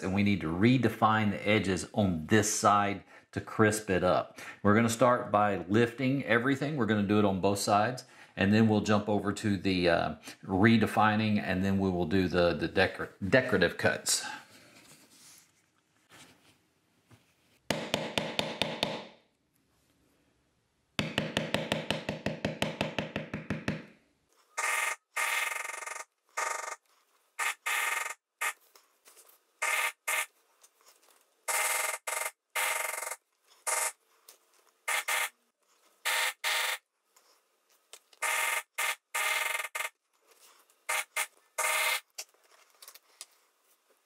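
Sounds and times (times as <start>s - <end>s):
maul tapping leather stamp: 17.7s - 19.2s, 21.0s - 24.0s.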